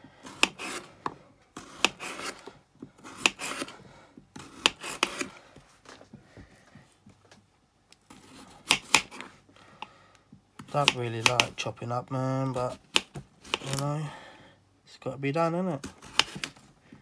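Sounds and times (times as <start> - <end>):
knife rasping through potato: 0.1 - 5.5, 8.1 - 9.4, 10.6 - 11.6, 12.5 - 14.0, 15.8 - 16.6.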